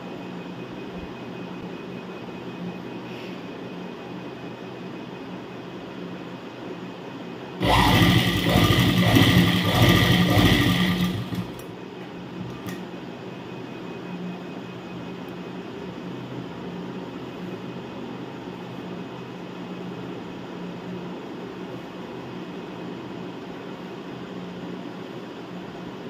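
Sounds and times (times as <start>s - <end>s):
low steady hum: 6.5s - 18.8s
sewing machine stitching: 7.6s - 11.6s.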